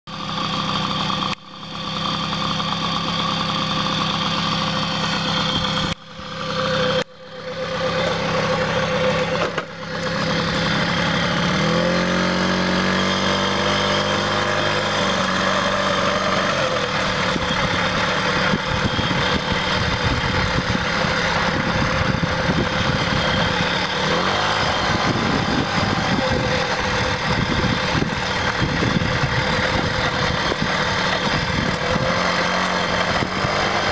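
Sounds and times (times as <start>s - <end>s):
moped engine idling and revving: 0.0s - 33.9s
wind on microphone: 24.6s - 32.2s.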